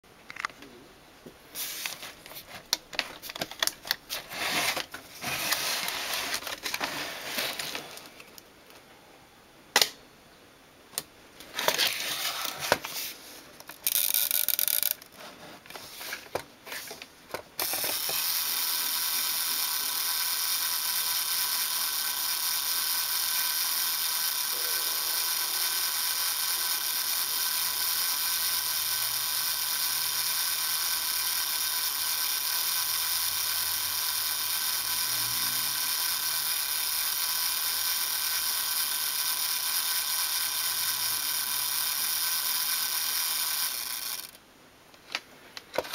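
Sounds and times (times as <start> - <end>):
mechanical timer whirring: 3.6 - 8.4, 13.7 - 15.1, 17.6 - 44.4
timer dial clicking and rattling: 13.8 - 15.0, 25.2 - 44.4.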